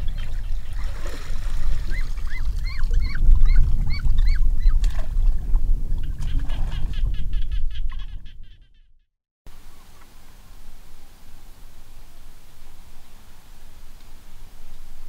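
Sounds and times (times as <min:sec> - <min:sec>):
water splashing: 0:00.0 - 0:04.0.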